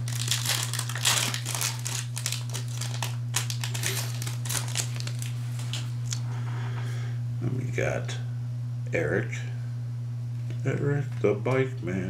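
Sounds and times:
foil wrapper crinkling: 0.0 - 6.2
low electrical hum: 0.0 - 12.0.

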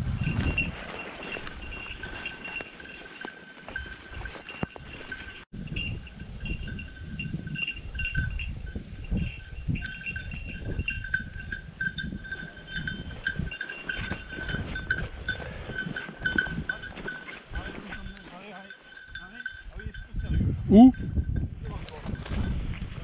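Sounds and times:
footsteps through dry bracken: 0.0 - 5.5
dog bell jingling: 0.0 - 22.6.

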